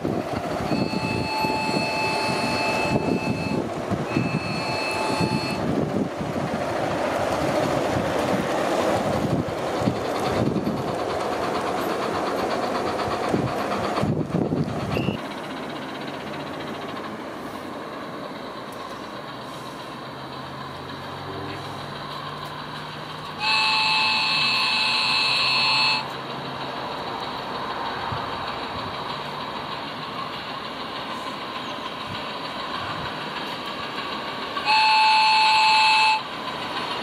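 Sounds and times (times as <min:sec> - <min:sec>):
steady background noise: 0:00.0 - 0:37.0
steam whistle blasts: 0:00.7 - 0:05.6, 0:23.4 - 0:26.1, 0:34.6 - 0:36.3.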